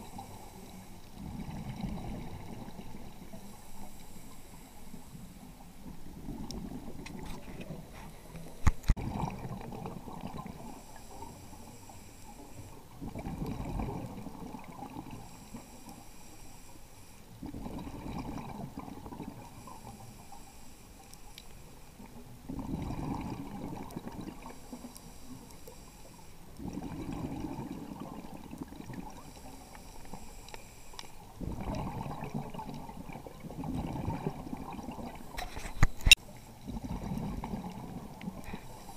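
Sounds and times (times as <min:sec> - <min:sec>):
underwater bubbling exhalation: 0:01.1 - 0:03.4, 0:05.8 - 0:10.9, 0:12.8 - 0:15.2, 0:17.4 - 0:19.7, 0:22.4 - 0:24.8, 0:26.5 - 0:29.6, 0:31.3 - 0:35.8, 0:36.6 - 0:38.9
scuba regulator breathing: 0:10.7 - 0:12.8, 0:19.5 - 0:22.0, 0:24.5 - 0:27.0, 0:29.2 - 0:31.3, 0:38.4 - 0:38.9.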